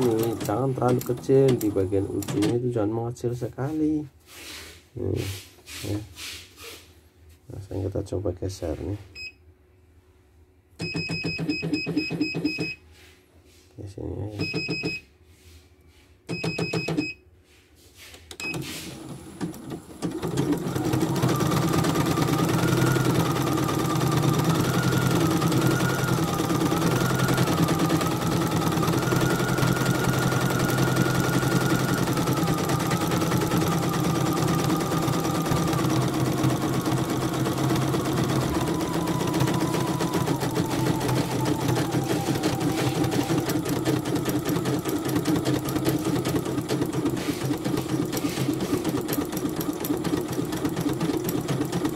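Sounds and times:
embroidery machine needle clatter: 0.0s - 2.6s
motor whine: 21.3s - 45.7s.

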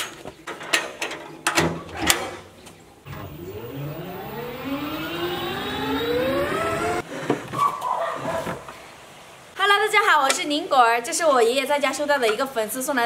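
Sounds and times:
small engine pulling away: 3.1s - 7.0s.

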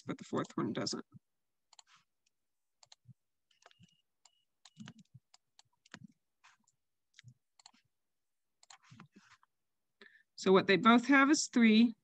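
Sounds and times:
faint mouse clicks and taps: 2.8s - 7.8s.

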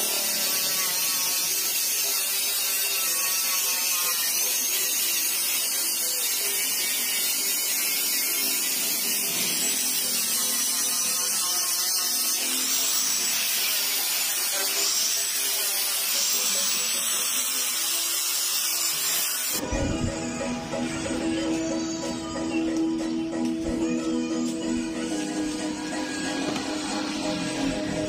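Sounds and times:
angle grinder sanding metal: 0.0s - 22.2s.

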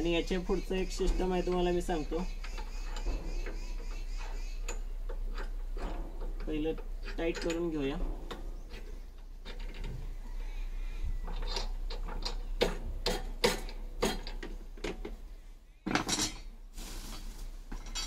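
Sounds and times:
metal clinks and knocks: 2.4s - 10.0s, 11.2s - 15.2s, 15.8s - 16.5s, 17.7s - 18.0s
short rustle: 16.7s - 18.0s.

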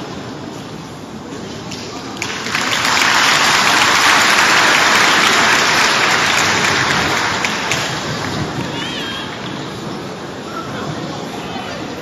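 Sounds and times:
audience applauding: 2.2s - 8.8s.

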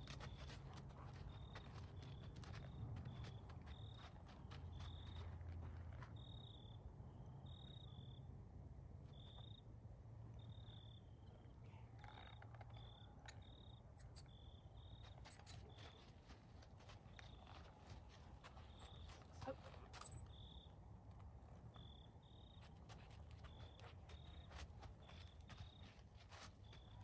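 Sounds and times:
cricket chirping: 1.2s - 8.3s, 9.0s - 9.7s, 10.3s - 16.1s, 20.0s - 20.8s, 21.5s - 27.0s.

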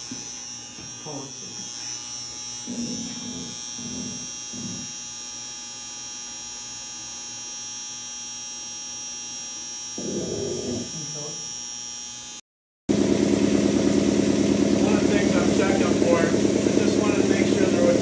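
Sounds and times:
air compressor running: 0.0s - 4.9s, 10.0s - 11.4s, 12.9s - 18.0s.

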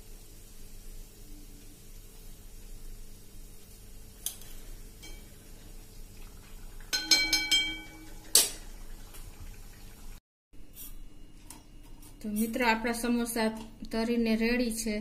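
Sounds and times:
metal spoon clinking on strainer: 6.9s - 8.1s.

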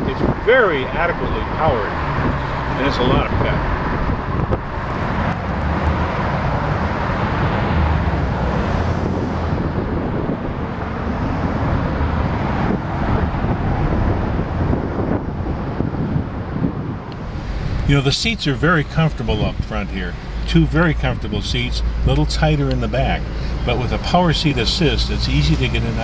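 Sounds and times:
road noise: 0.0s - 26.0s
traffic noise: 0.0s - 26.0s
wind noise: 0.0s - 26.0s.

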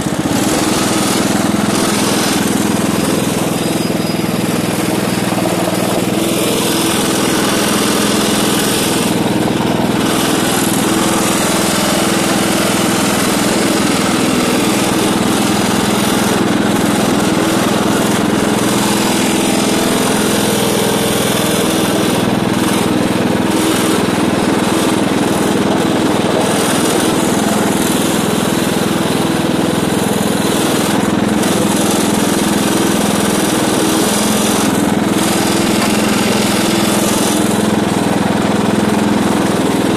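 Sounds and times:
lawn tractor engine running: 0.0s - 39.9s.

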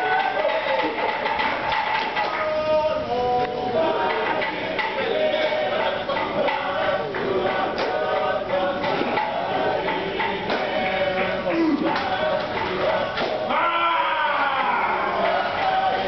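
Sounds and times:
percussive strikes: 0.0s - 2.6s, 4.0s - 13.6s
group singing and chanting: 0.0s - 16.0s.

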